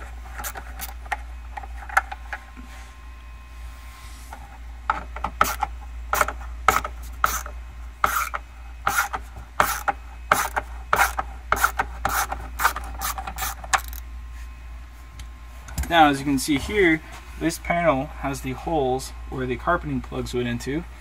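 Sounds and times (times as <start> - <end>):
ratchet wrench clicking: 12.6 - 14.0.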